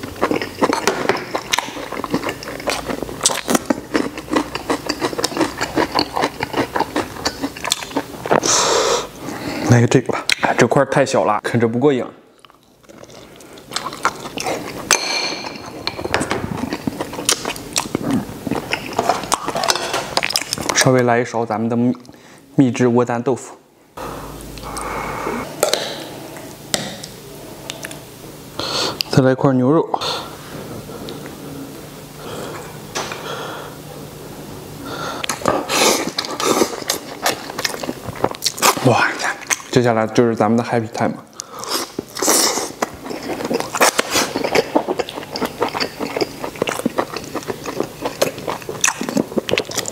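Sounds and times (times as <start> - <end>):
person chewing: 0.0 - 10.5, 12.4 - 20.8, 24.3 - 28.0, 35.1 - 39.7, 41.3 - 49.9.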